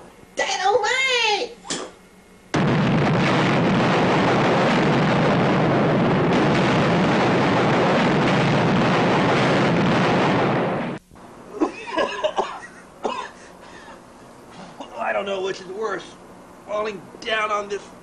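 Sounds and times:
explosion blast: 2.5 - 11.0
man coughing and groaning: 11.5 - 15.0.

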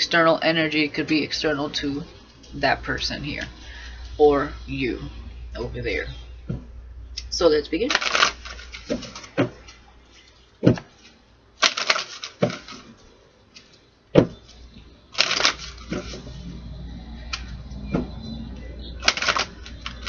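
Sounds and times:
rapid card clicking: 7.9 - 9.8, 11.6 - 12.9, 15.2 - 16.2, 19.0 - 20.0
cards being shuffled: 7.9 - 13.0, 15.2 - 16.3, 19.0 - 20.0.

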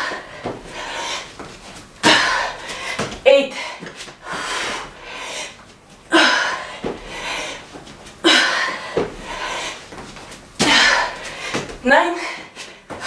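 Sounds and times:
woman panting: 0.0 - 10.0, 10.6 - 13.0
hands and feet thudding on mat: 6.7 - 12.0.

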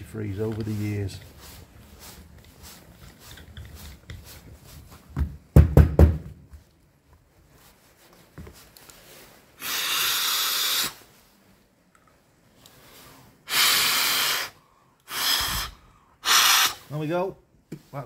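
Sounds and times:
heavy knocks: 5.2 - 6.4
air blown through valve: 9.6 - 11.2, 13.0 - 17.0.

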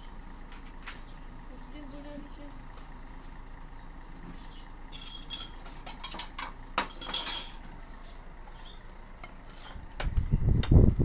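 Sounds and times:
spoons and plates clinking: 4.9 - 7.7.

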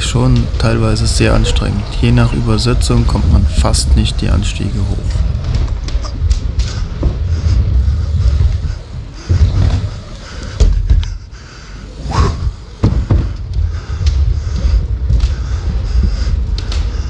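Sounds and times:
bike tyres rolling rumble: 0.0 - 17.0
bike knocks and thumps: 12.8 - 17.0.

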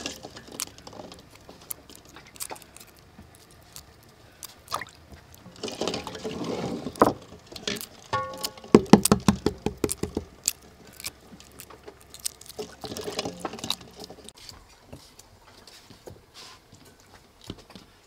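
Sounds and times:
egg shells cracking: 0.0 - 6.2, 7.0 - 14.4
small water splashes: 4.4 - 5.0.

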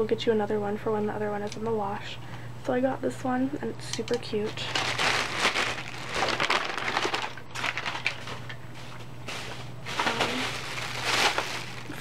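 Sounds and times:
plastic bag and paper rustling: 4.4 - 12.0.

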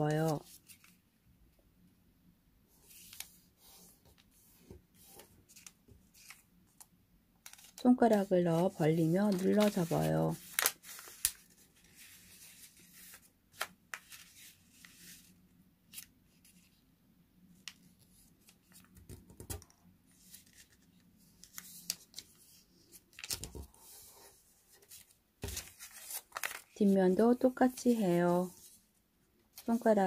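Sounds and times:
paper rustling and ticking: 7.4 - 12.0, 23.1 - 23.7, 24.8 - 26.8.

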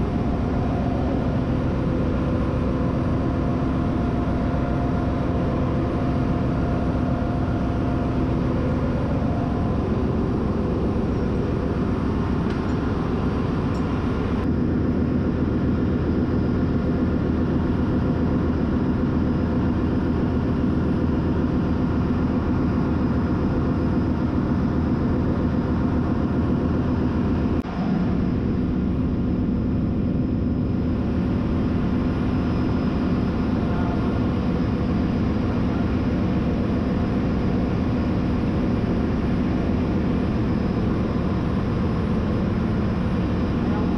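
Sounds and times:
engine room machinery drone: 0.0 - 43.9.

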